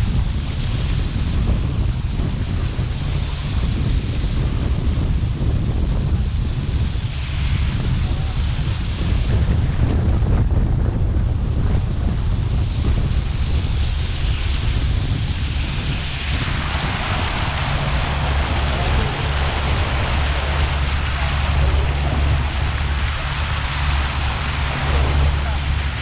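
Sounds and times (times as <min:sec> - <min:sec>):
steady low rumble: 0:00.0 - 0:26.0
wind buffeting microphone: 0:00.0 - 0:26.0
rushing water: 0:11.2 - 0:26.0.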